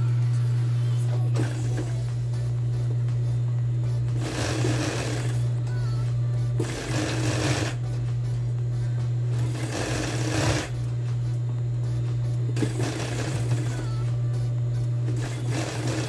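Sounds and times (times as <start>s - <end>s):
sewing machine motor humming: 1.1s - 16.0s
overlock machine stitching: 1.3s - 2.2s, 4.1s - 5.6s, 6.6s - 7.9s, 9.3s - 10.9s, 12.5s - 14.1s, 15.0s - 16.0s.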